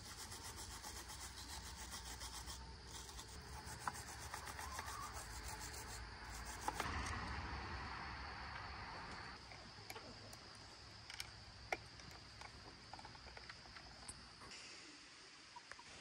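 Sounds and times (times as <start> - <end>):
wire brush scratching metal: 0.0 - 7.0.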